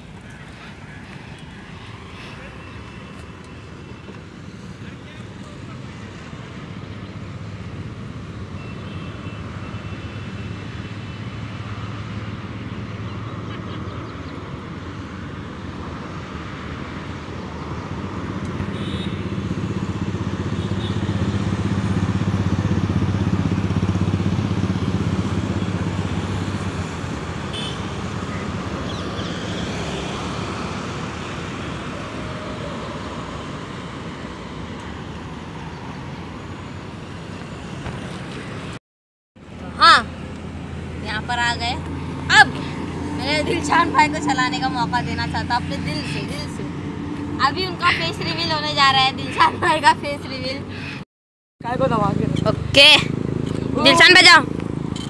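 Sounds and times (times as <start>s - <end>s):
steady traffic hum: 0.0s - 38.8s, 39.4s - 55.0s
vehicle engine passing: 17.7s - 38.8s, 39.4s - 50.9s.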